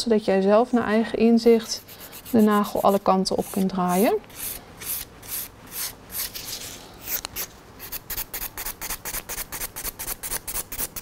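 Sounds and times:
nail file rasping on nail: 1.7 - 6.4, 7.0 - 11.0.

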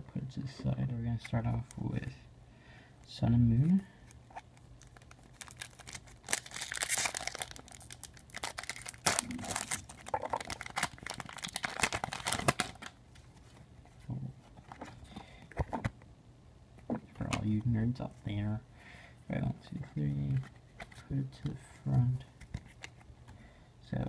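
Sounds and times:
cards rustling: 4.0 - 16.0, 19.7 - 23.4
foil wrapper tearing and crinkling: 4.8 - 13.0.

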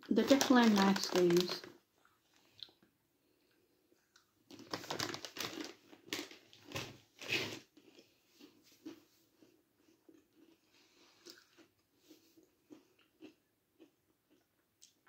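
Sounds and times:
crunchy pretzel being chewed: 4.1 - 15.0.

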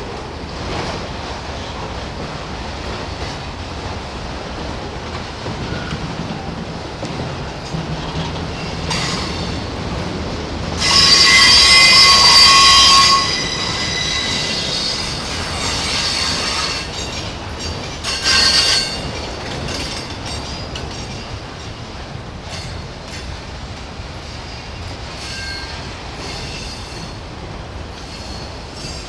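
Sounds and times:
train wheels rumbling on rail: 0.0 - 29.0
wheel flange squeal: 10.8 - 17.1.

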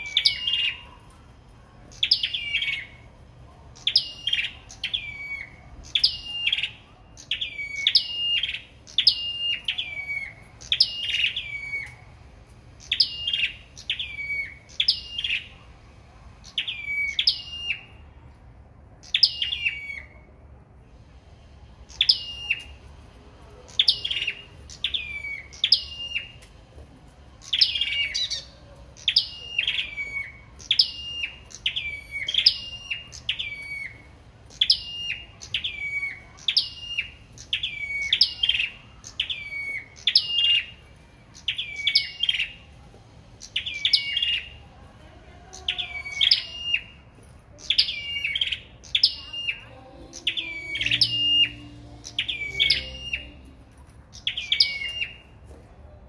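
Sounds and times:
songbirds singing high notes: 0.0 - 1.1, 1.9 - 3.1, 3.8 - 12.2, 12.8 - 15.6, 16.4 - 18.1, 19.0 - 20.3, 21.9 - 22.8, 23.7 - 26.4, 27.4 - 40.8, 45.6 - 47.0, 47.6 - 55.4.

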